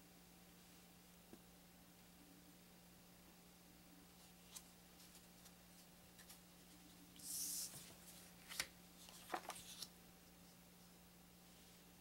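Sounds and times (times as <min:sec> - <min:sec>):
card sliding rustle: 0:07.2 - 0:09.9.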